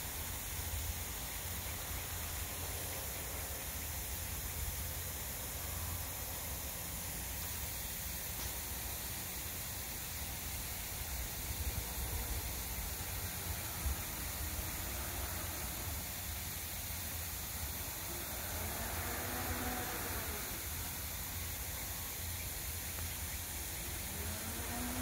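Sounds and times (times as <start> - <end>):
outdoor background hiss: 0.0 - 25.0.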